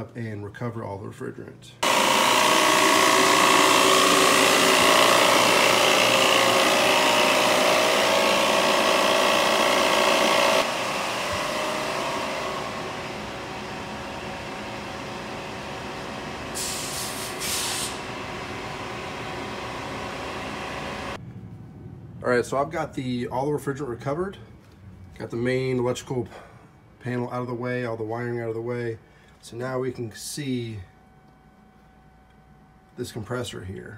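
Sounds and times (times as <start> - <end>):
recovery machine compressor whirring: 1.8 - 21.6
brief hisses: 16.6 - 18.0.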